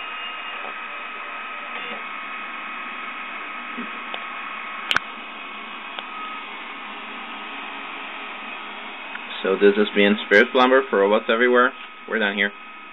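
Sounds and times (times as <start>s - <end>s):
printer motor hum and whine: 0.0s - 12.9s
sharp click: 4.9s - 5.1s.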